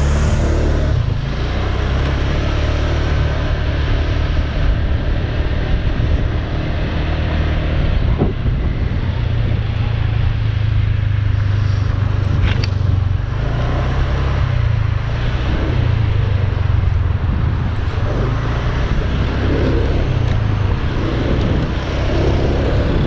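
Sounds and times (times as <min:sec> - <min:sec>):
motorcycle engine running: 0:00.0 - 0:23.0
wind and road noise: 0:00.0 - 0:23.0.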